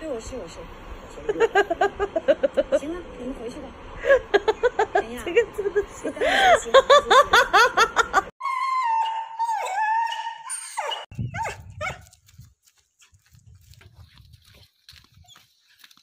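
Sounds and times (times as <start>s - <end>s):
dog whining: 8.4s - 12.0s
dog yelping: 8.4s - 12.1s.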